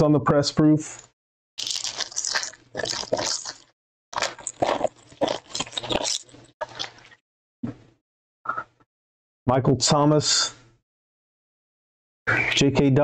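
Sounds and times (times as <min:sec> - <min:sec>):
foil wrapper crinkling and tearing: 0:01.6 - 0:07.2.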